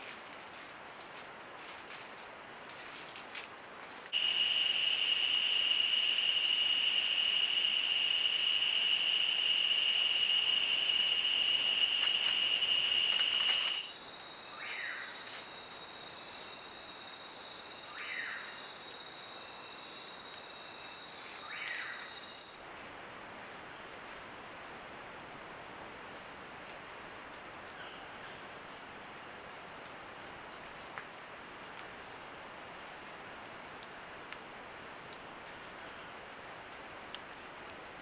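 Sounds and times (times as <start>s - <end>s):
buzzy insect chorus: 4.1s - 22.7s
insect trill: 4.1s - 22.7s.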